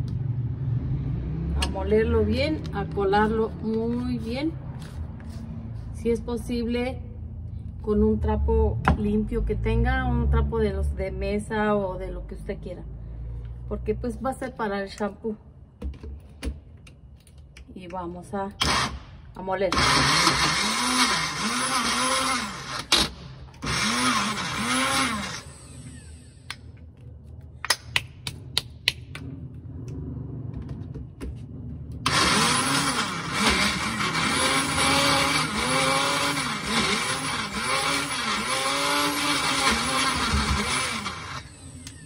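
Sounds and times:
blender motor grinding: 18.6 - 19.0, 19.7 - 26.7, 32.0 - 42.0.

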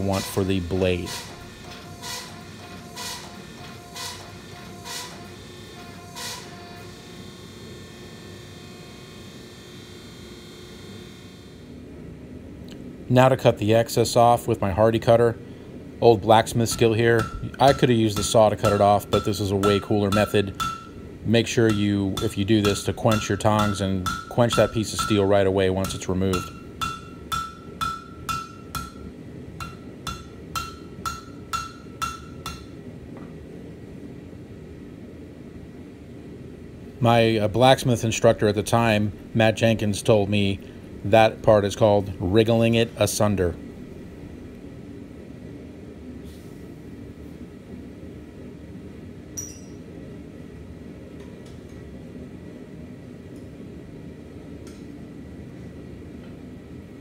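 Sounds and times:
hammer striking hot steel on anvil: 0.0 - 5.3, 16.7 - 32.8, 49.4 - 49.8
shop equipment rumble: 0.0 - 11.8, 13.2 - 33.2
metal tools clinking on anvil: 49.4 - 49.8.

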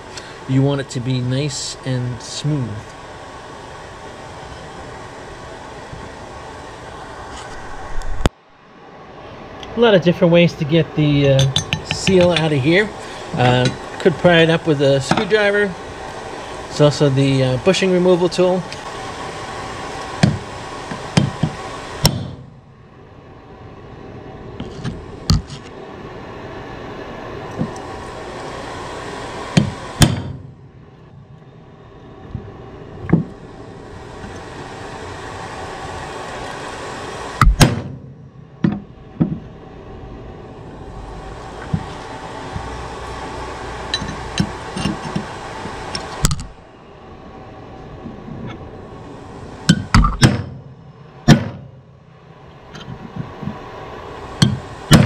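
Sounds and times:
steady background hiss: 0.0 - 55.0.

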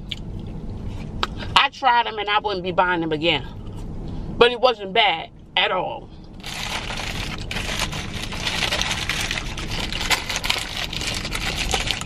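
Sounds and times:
paper wrapping crinkling: 6.4 - 12.0.

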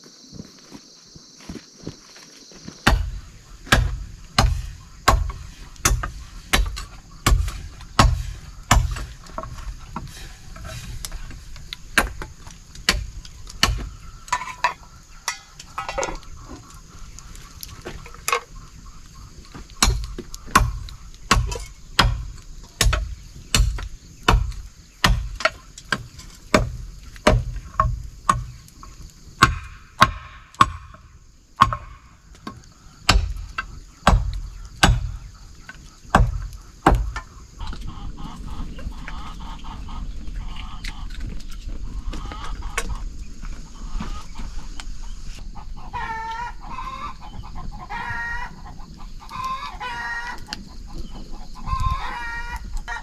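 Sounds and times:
insects droning: 0.0 - 53.0
chopping on wooden block: 3.7 - 9.1, 34.0 - 35.1.

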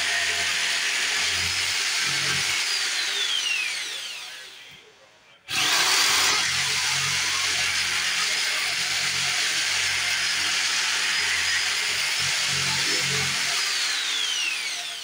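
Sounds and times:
jigsaw cutting board: 0.0 - 4.6, 5.5 - 15.0.

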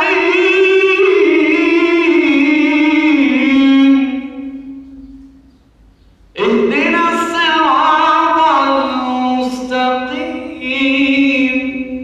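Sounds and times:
man chanting into a microphone: 0.0 - 4.7, 6.4 - 12.0.

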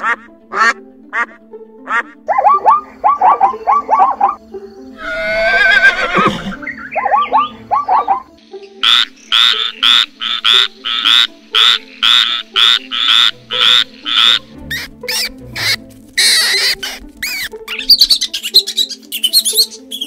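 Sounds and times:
background music: 0.0 - 20.0
frog croaking: 7.0 - 14.5
high squeaky chirps: 11.7 - 20.0.

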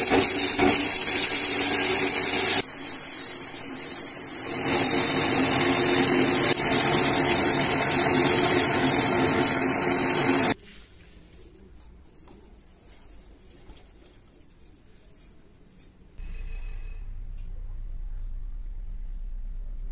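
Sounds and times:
sanding strip rasping on wood: 0.0 - 10.6
lathe motor hum: 4.0 - 10.6
low steady hum: 16.1 - 19.9.

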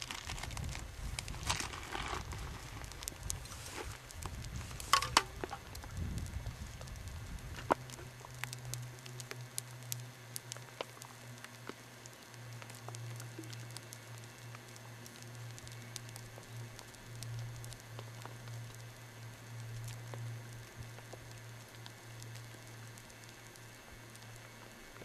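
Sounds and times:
hail pellets ticking: 0.0 - 25.0.

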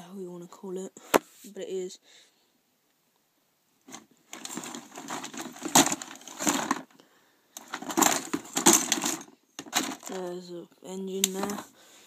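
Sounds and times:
plastic and metal parts clattering: 3.9 - 7.0, 7.6 - 10.4, 11.2 - 11.8.

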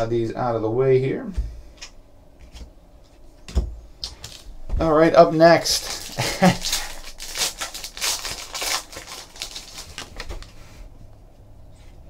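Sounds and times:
foil wrapper tearing and crinkling: 5.6 - 10.6.

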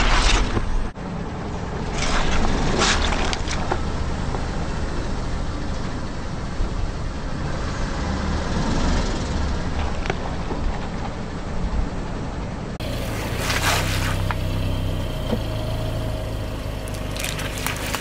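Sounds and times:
car running: 0.0 - 18.0
fruit crunching under tyre: 16.8 - 18.0.

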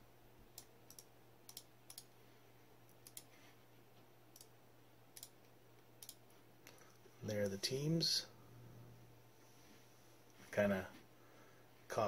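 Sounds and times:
computer mouse clicks: 0.6 - 2.1, 2.9 - 3.3, 5.2 - 5.4, 6.0 - 6.8.

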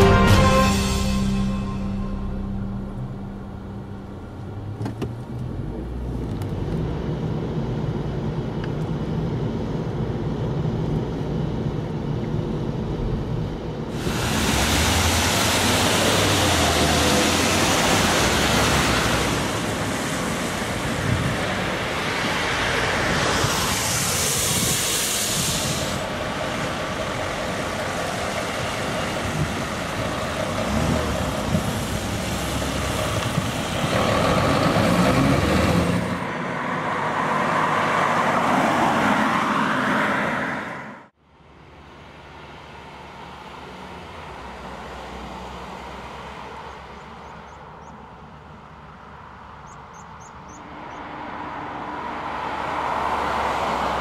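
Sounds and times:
passing traffic road noise: 0.0 - 54.0
vehicle engine hum: 0.0 - 54.0
bright hiss: 13.9 - 21.0, 21.7 - 28.4.

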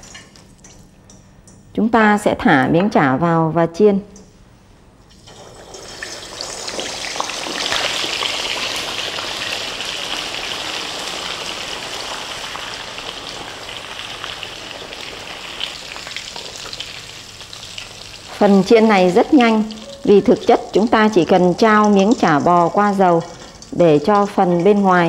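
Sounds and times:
hot oil sizzling: 5.1 - 25.0.

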